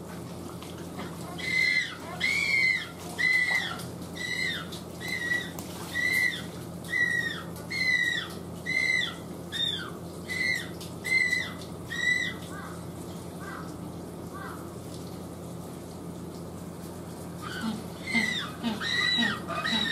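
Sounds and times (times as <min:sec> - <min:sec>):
penguin chick calling: 0:01.3 - 0:12.4, 0:17.4 - 0:19.9.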